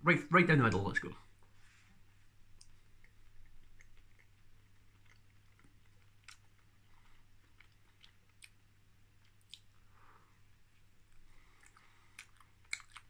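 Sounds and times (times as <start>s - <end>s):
man chewing: 2.6s - 13.0s
wet mouth clicks: 9.2s - 9.8s, 11.6s - 13.0s.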